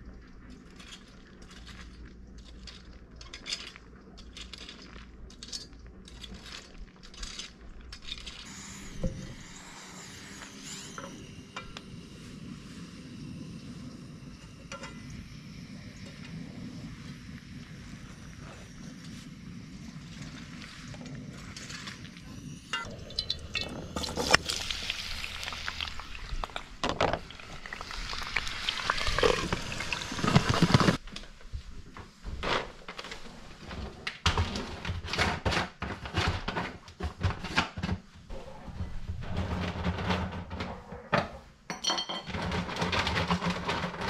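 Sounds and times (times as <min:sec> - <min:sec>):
kitchen handling noise: 0:33.7 - 0:44.0
pot and jar knocks and clinks: 0:41.7 - 0:42.6.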